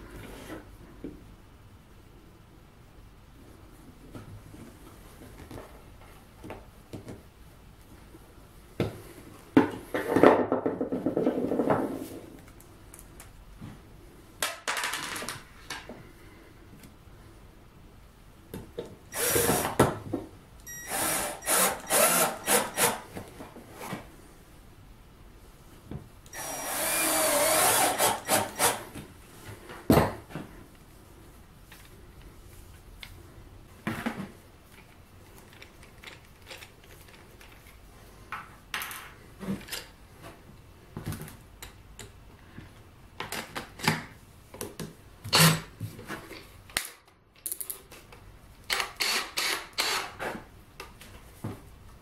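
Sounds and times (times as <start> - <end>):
cordless drill running in bursts: 19.1 - 19.8, 20.7 - 23.0, 26.3 - 28.8, 49.0 - 50.1.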